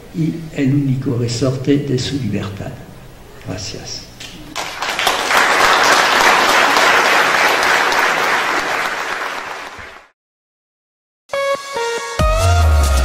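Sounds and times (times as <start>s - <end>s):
audience applauding: 4.5s - 10.1s
electronic music: 11.3s - 13.0s.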